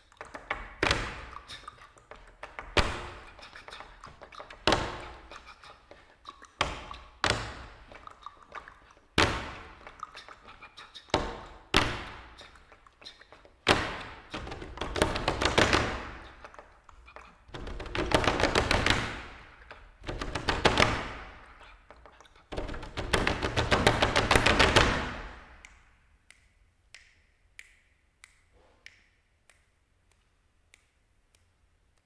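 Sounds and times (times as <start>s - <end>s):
hands slapping wooden tabletops: 0.0s - 29.6s
scratchy rubbing on wood: 0.2s - 24.5s.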